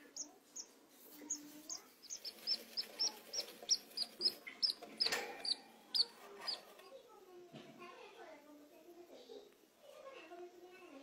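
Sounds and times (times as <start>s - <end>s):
budgerigar chick peeping: 0.0s - 6.7s.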